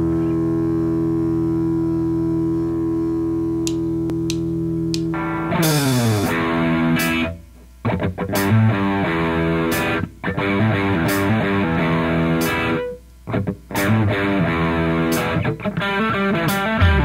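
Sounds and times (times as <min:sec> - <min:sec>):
distorted electric guitar chord: 0:00.0 - 0:07.4, 0:16.0 - 0:17.0
rock band playing: 0:05.0 - 0:07.3, 0:16.2 - 0:17.0.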